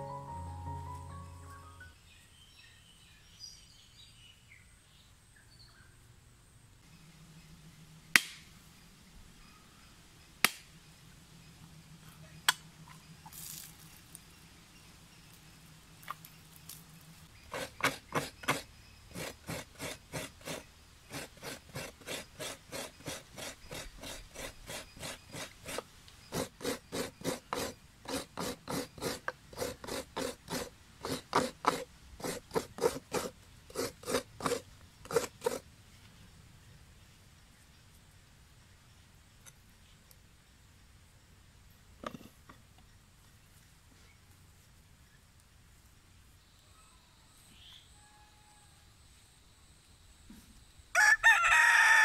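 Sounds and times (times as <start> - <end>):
coconut grating rasps: 17.5 - 35.6.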